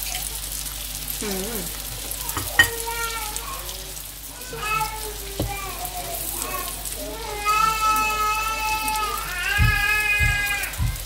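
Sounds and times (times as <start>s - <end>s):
pan sizzling: 0.0s - 11.0s
young child whining: 4.4s - 11.0s
soft low thumps: 9.5s - 11.0s.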